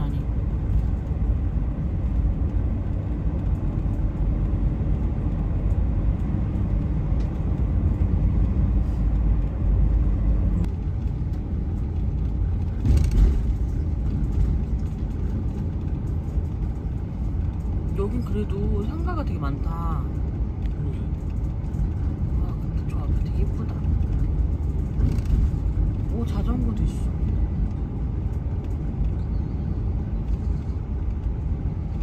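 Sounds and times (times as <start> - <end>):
road and engine rumble in cab: 0.0 - 32.0.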